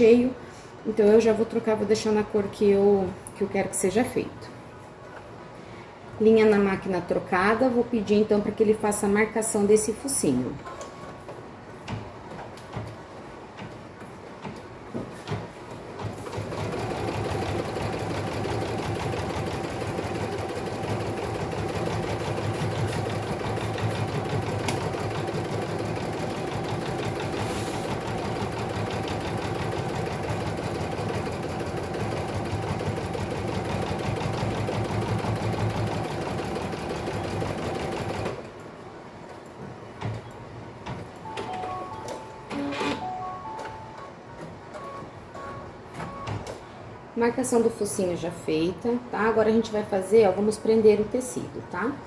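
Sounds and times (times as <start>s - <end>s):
embroidery machine stitching: 16.1s - 38.4s.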